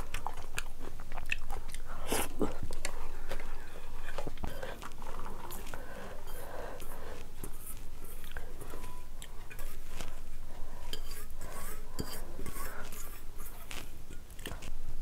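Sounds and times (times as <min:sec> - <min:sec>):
chewing and mouth sounds: 0:00.0 - 0:14.8
metal pot clinking and scraping: 0:10.8 - 0:14.2.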